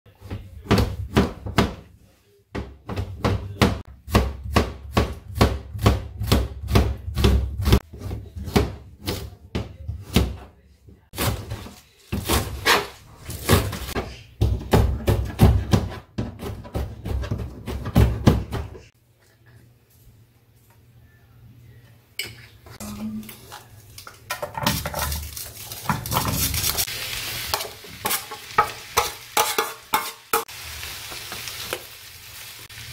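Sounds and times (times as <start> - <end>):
knife chopping on plastic board: 2.6 - 10.4.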